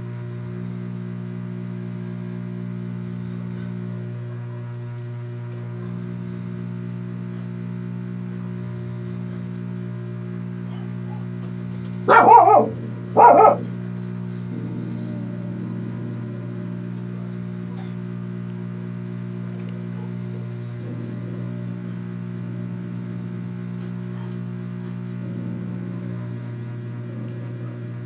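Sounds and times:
electrical hum: 1.1 - 28.0
dog barking: 10.7 - 11.4, 12.1 - 13.8, 23.8 - 28.0.

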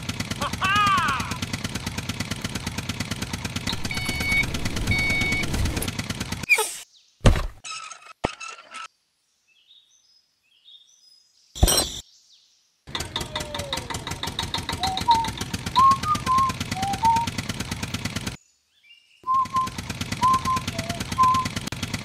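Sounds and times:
small tractor engine chugging: 0.0 - 6.5, 12.9 - 18.4, 19.3 - 22.0
birds chirping: 9.4 - 21.7.

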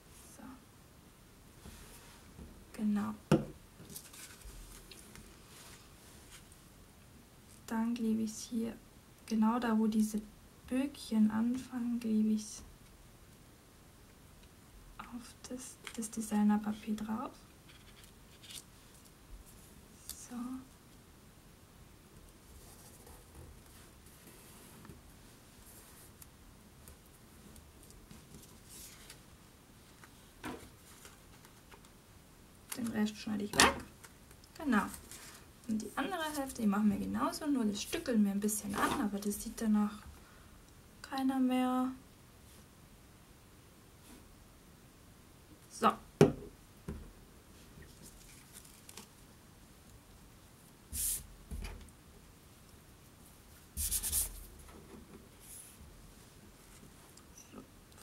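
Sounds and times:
knock on wooden tabletop: 3.3 - 3.6
paper rustling: 3.8 - 6.5, 47.9 - 49.2.

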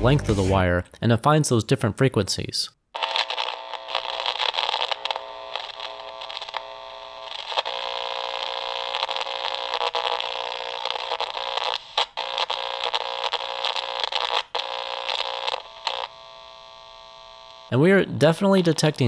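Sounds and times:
radio static hiss: 0.0 - 0.6, 3.0 - 16.8
crackles and clicks: 3.0 - 16.4
steady buzzing hum: 3.5 - 17.7.

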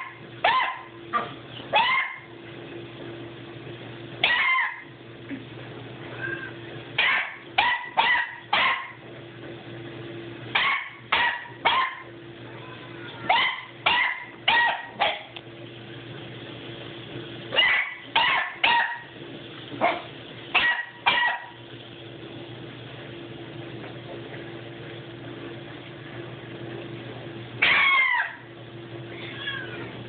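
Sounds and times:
puppy yipping: 0.0 - 0.9, 1.8 - 2.3, 4.2 - 4.9, 7.0 - 9.0, 10.6 - 12.0, 13.2 - 15.3, 17.6 - 19.0, 27.6 - 28.4.

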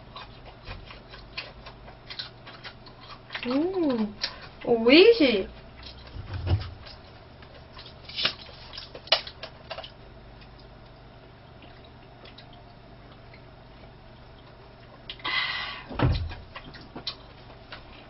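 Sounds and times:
wet mouth clicks chewing: 0.0 - 4.6, 5.8 - 11.0, 11.6 - 15.3
breathy burst: 15.2 - 16.0.

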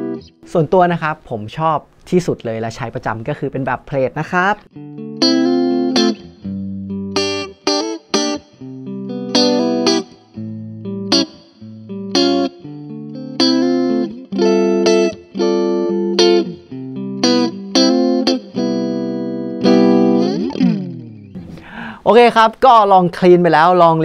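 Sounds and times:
electric guitar strummed chords: 0.0 - 0.5, 4.7 - 21.8.

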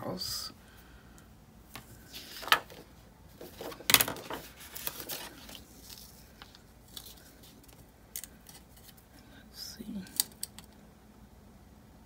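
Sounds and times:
paper rustling: 1.8 - 9.0.

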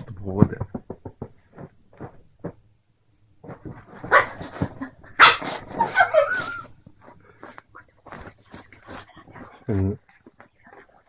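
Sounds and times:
faint rustling: 0.0 - 11.0
puppy barking: 4.0 - 4.5, 5.2 - 5.6.

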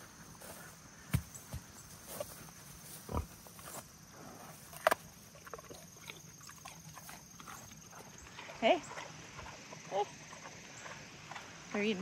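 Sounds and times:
pig crunching food: 3.1 - 11.6.

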